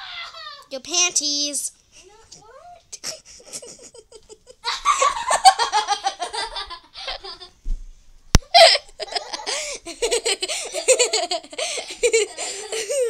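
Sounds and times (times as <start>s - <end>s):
girls laughing: 2.9s - 7.6s, 8.4s - 13.0s.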